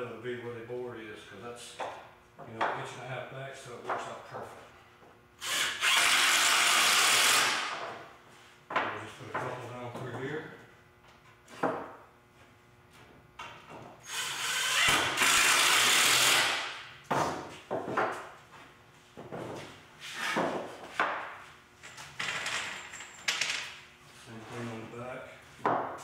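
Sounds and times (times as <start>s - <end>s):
impact driver driving screws: 14.1s - 16.7s.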